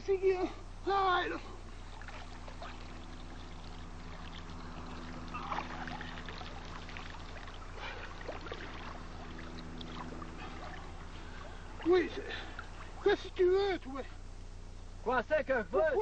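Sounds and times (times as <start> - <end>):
low electrical hum: 0.0 - 16.0
water trickling: 0.9 - 14.6.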